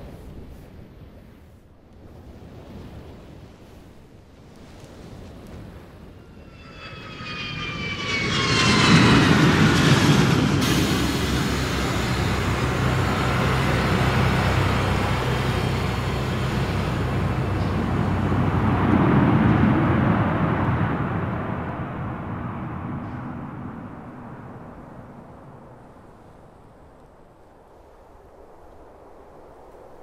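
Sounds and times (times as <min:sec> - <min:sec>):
jet aircraft roar: 0:05.7 - 0:25.6.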